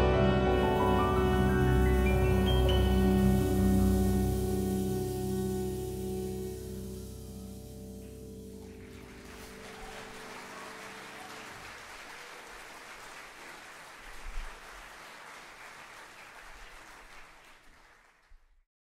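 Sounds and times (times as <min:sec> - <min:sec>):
audience applauding: 0:08.0 - 0:18.6.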